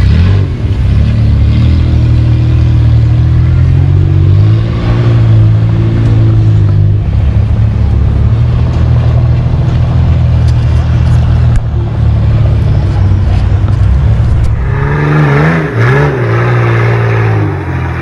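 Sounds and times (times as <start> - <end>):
off-road engine revving: 0.0 - 18.0.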